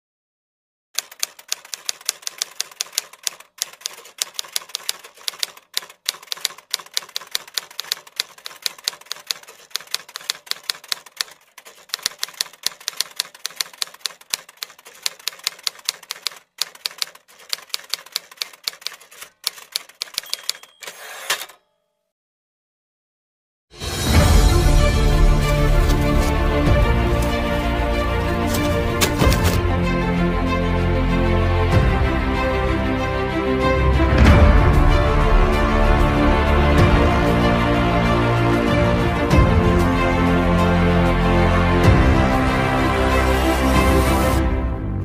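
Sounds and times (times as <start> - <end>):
typewriter keystroke clicks: 1.0 - 21.6, 28.4 - 29.6.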